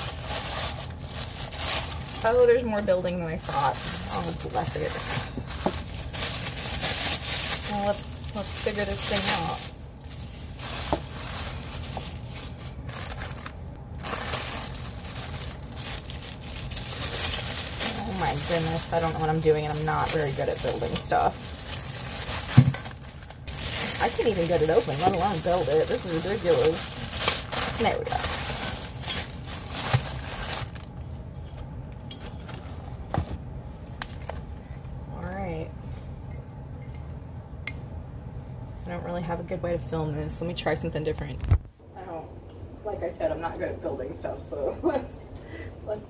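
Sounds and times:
plastic bags crinkling: 0.0 - 31.1.

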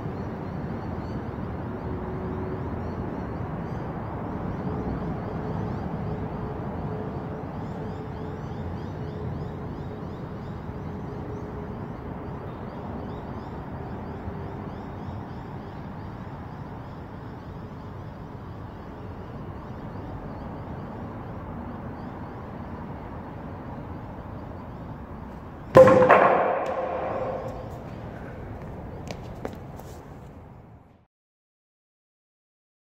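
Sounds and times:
wooden plank hitting concrete floor: 25.7 - 29.6.

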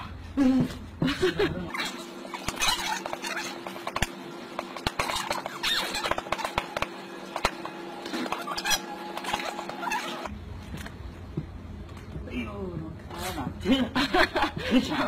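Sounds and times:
dogs whining: 0.0 - 4.2, 4.8 - 6.8, 7.4 - 10.3.

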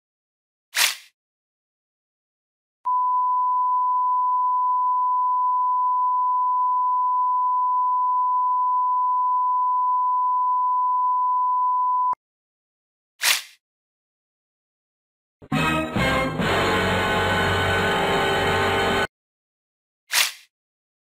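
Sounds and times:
censor beep tone: 2.9 - 12.2.

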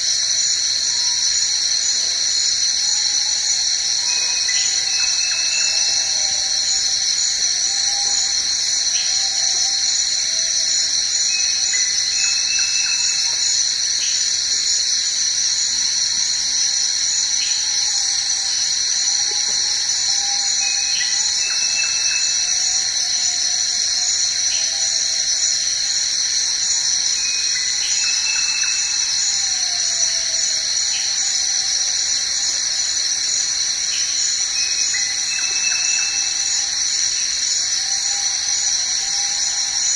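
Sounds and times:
insect chorus drone: 0.0 - 39.9
faint wavering whistled calls: 26.7 - 39.9.

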